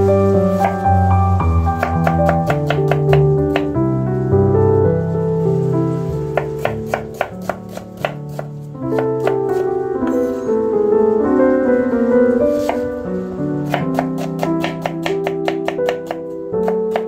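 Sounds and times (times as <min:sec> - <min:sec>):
piano background music: 0:00.0 - 0:17.0
knife slicing onion on board: 0:01.8 - 0:03.7, 0:06.3 - 0:10.4, 0:12.6 - 0:12.9, 0:13.6 - 0:17.0.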